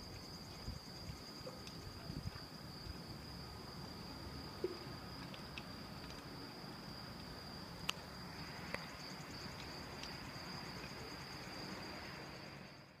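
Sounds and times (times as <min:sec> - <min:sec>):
crickets chirping: 0:00.0 - 0:13.0
faint high-pitched whine: 0:00.0 - 0:13.0.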